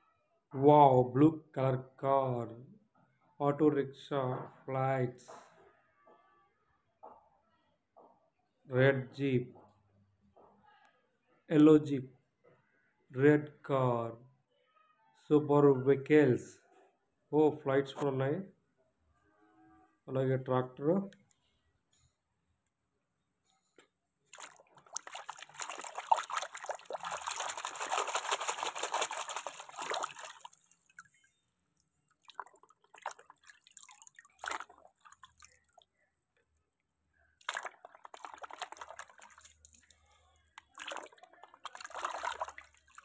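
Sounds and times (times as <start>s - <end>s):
muddy water splashing: 24.3s - 31.3s, 32.1s - 36.0s, 37.4s - 43.0s.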